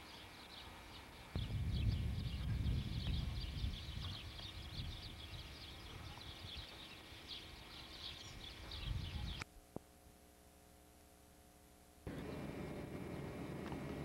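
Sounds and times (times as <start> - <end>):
small birds chirping: 0.0 - 9.5
low microphone rumble: 1.4 - 6.7.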